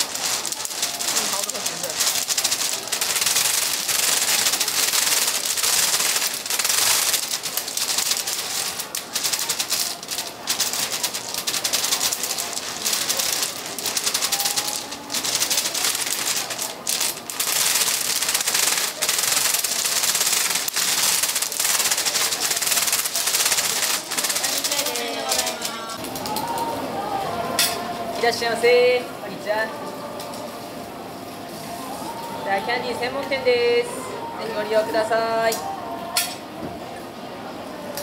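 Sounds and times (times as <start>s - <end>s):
hard candy clattering on table: 0.0s - 25.7s.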